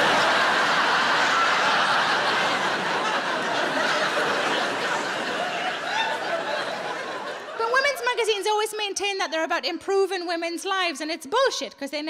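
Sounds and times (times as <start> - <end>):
audience laughing: 0.0 - 8.2.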